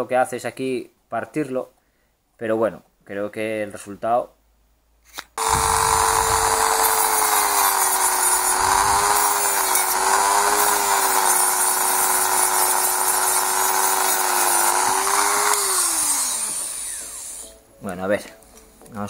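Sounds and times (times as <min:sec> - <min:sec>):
rotary tool whining: 0:05.4 - 0:17.5.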